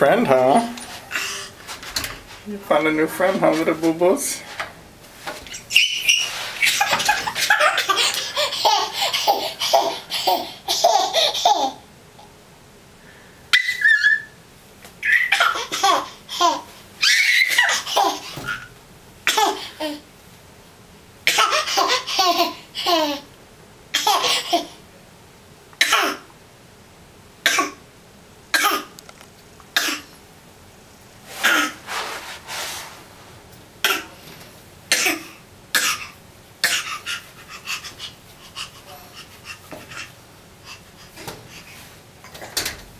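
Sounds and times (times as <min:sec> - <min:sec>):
baby laughing: 0:05.5 - 0:11.8, 0:13.5 - 0:14.3, 0:15.0 - 0:18.7, 0:19.3 - 0:20.0, 0:21.3 - 0:23.3, 0:23.9 - 0:24.8, 0:36.6 - 0:41.1.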